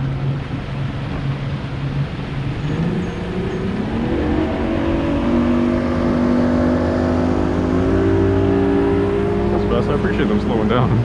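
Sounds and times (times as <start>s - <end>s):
motorboat engine running: 0.0s - 11.0s.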